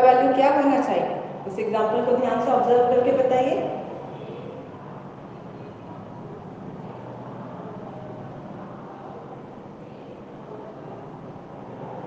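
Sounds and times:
faint hum: 0.0s - 12.0s.

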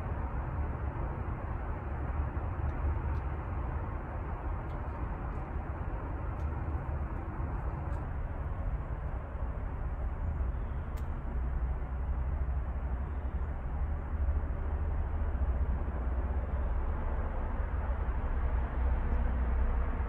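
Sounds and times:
low fluctuating rumble: 0.0s - 20.0s
faint click: 10.9s - 11.2s.

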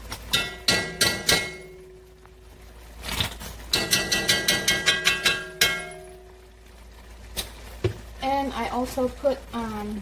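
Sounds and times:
spoon tapping pot rim: 3.7s - 6.3s.

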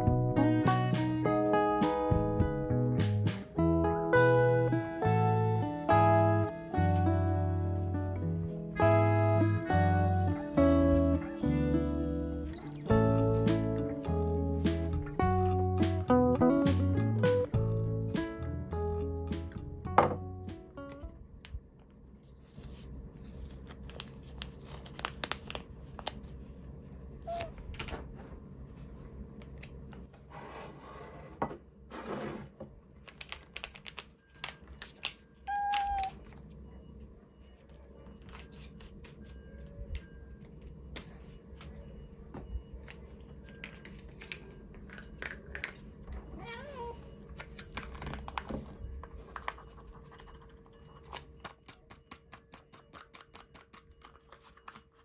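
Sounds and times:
cat meow: 35.5s - 36.2s, 46.4s - 47.1s
small objects clicking and tapping: 50.2s - 54.8s.

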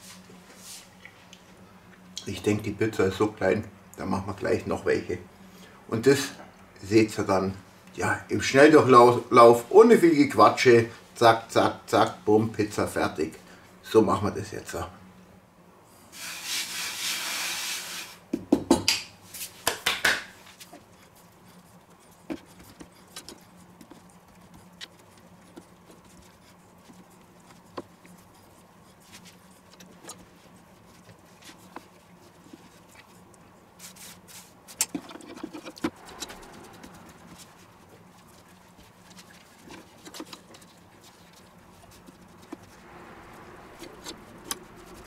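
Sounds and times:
faint steady hum: 0.0s - 45.0s
flour rubbing on wooden board: 16.2s - 18.2s, 20.4s - 34.8s, 43.7s - 45.0s
hands patting dough: 18.3s - 42.8s.

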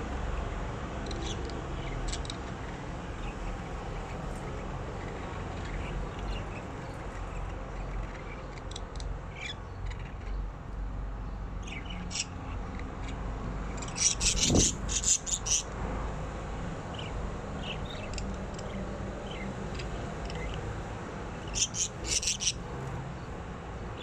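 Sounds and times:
budgerigars chirping: 1.1s - 10.4s, 11.6s - 15.7s, 16.9s - 20.6s, 21.4s - 22.6s.

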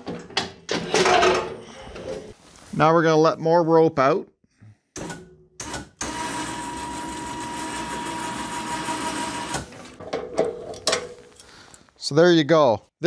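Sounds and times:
electric winch motor whine: 6.0s - 10.0s.

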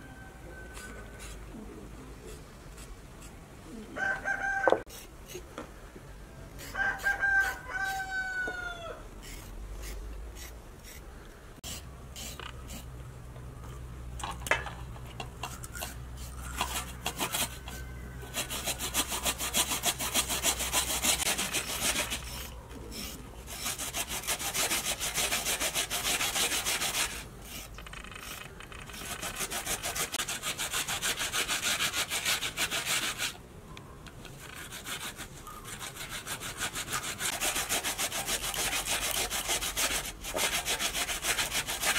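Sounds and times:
potato grating on plastic grater: 18.3s - 33.3s, 34.4s - 41.9s.

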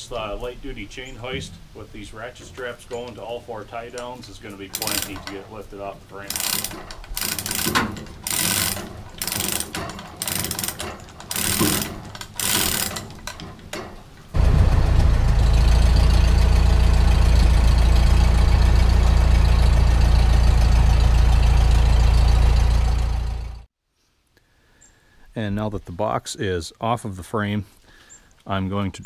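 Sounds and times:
chain hoist ratchet clattering: 2.4s - 14.3s
loud low rumble: 14.4s - 23.7s.

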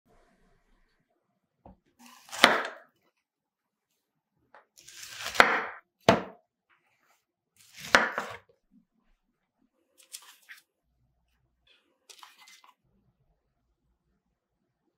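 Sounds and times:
knife crunching through cauliflower: 4.8s - 5.8s
knife knocking on cutting board: 5.4s - 6.4s.

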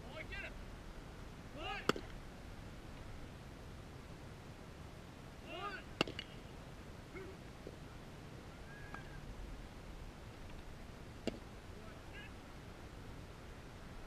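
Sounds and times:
baseball popping into mitt: 1.9s - 2.2s, 6.0s - 6.3s, 11.2s - 11.5s
faint chirping calls: 7.1s - 9.4s.

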